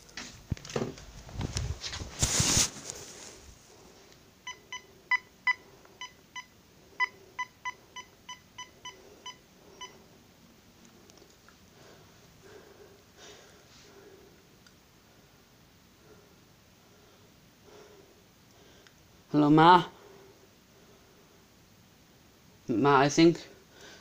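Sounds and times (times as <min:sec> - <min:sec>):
phone keypad beeps: 0:04.5 - 0:10.0.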